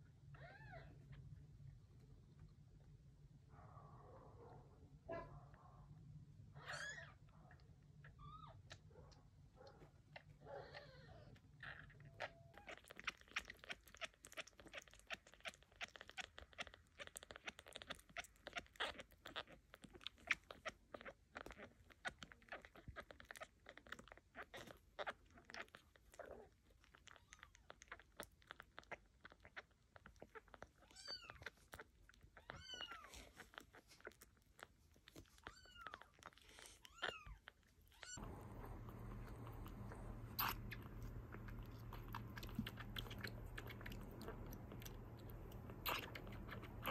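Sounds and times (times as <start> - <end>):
kitten squeaking: 6.6 - 7.3, 8.1 - 8.8, 10.2 - 26.4, 27.0 - 34.4, 35.0 - 46.9
kitten suckling with wet clicks: 7.6 - 46.9
steady low hum: 38.2 - 46.9.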